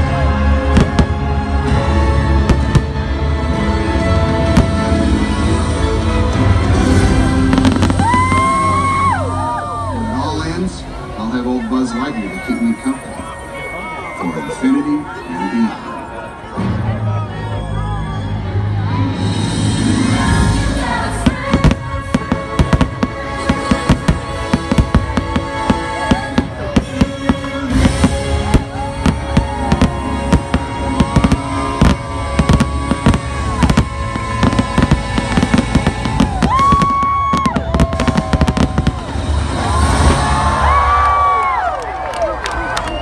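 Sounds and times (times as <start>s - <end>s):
fireworks cracking and banging: 0.0s - 3.3s, 4.1s - 9.2s, 20.2s - 41.4s
soundtrack music: 0.0s - 41.6s.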